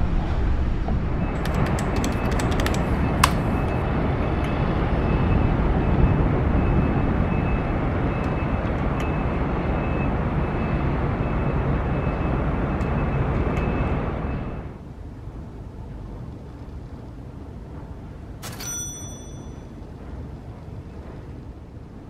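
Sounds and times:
sharp clicks: 1.4 - 3.8.

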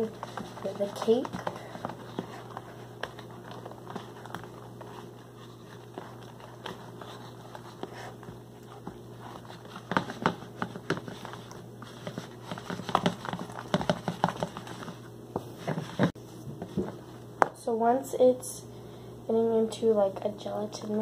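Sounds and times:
spatula stirring wet mixture: 0.0 - 16.8.

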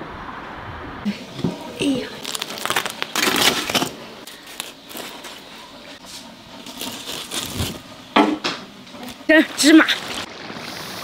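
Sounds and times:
flatbreads crackling and rustling: 1.4 - 8.0.

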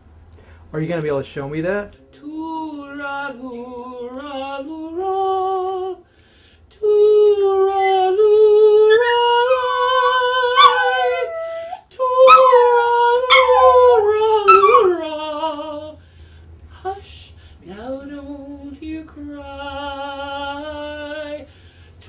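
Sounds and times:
woman singing long notes: 6.8 - 16.0
dog howling: 8.8 - 15.1.

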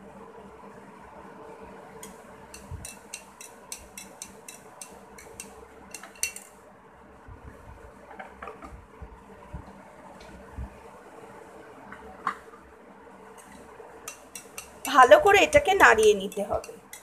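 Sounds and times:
spoon clinking against glass: 2.6 - 6.5.

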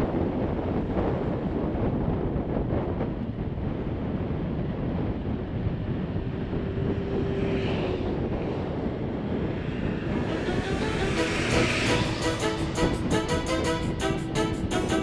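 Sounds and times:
wind buffeting microphone: 0.0 - 15.0
motorcycle engine rumble: 5.1 - 13.3.

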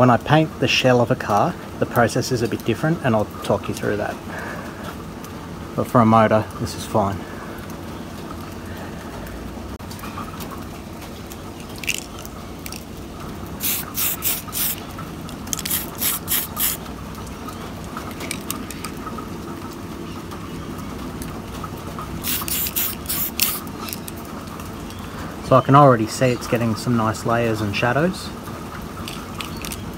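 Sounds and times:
steady low hum: 11.4 - 17.2
spray paint hissing in bursts: 13.6 - 14.9, 15.5 - 16.8, 22.2 - 23.7.

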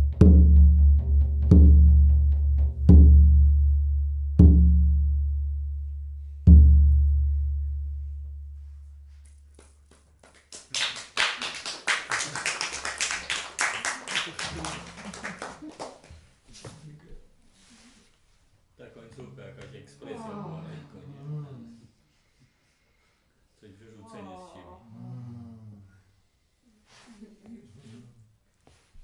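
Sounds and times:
frame drum booms: 0.0 - 9.1
people clapping: 9.2 - 16.2.

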